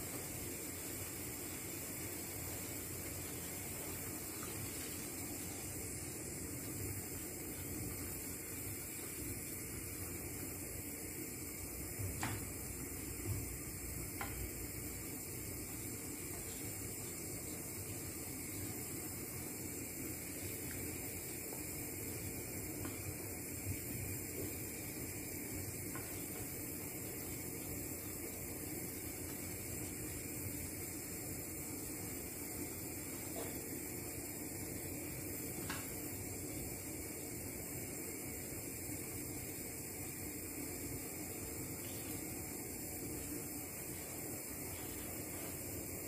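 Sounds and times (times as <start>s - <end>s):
wooden spoon stirring in pan: 0.0s - 10.3s, 11.9s - 31.2s, 40.8s - 46.0s
simmering broth hiss: 0.0s - 46.0s.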